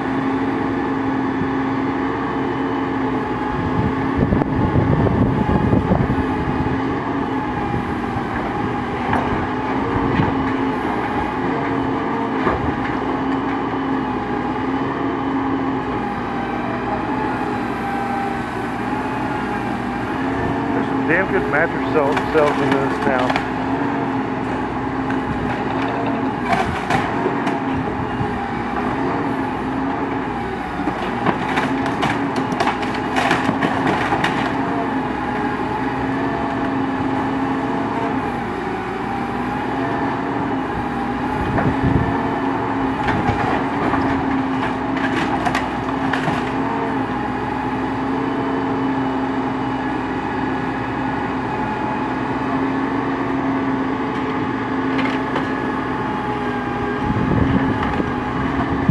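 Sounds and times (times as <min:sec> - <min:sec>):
engine running: 0:00.0 - 0:58.9
wood cracking and splintering: 0:21.1 - 0:23.6, 0:25.0 - 0:27.8, 0:30.7 - 0:34.8, 0:42.9 - 0:46.8.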